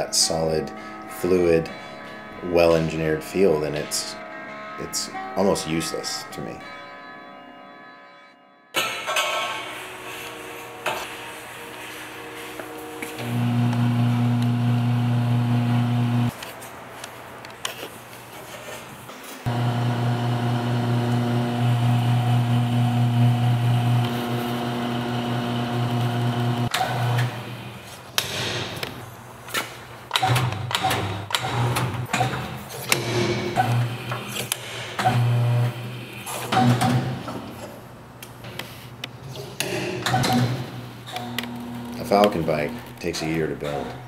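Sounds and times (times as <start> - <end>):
bending machine motor humming: 13.2 - 16.3, 19.5 - 27.6.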